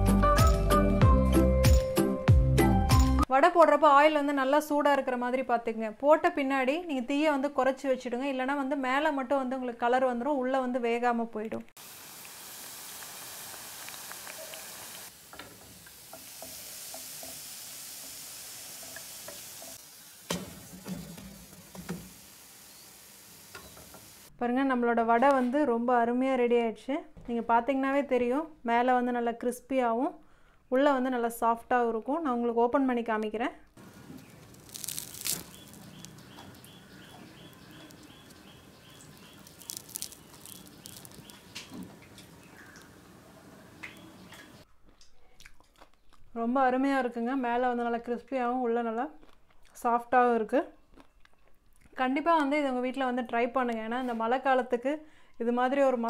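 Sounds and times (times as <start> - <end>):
deep-frying sizzle with pops: 11.8 - 24.3, 33.8 - 42.9
fried snack crackling: 12.1 - 15.1, 33.8 - 42.9
faint high chirp: 35.4 - 41.8.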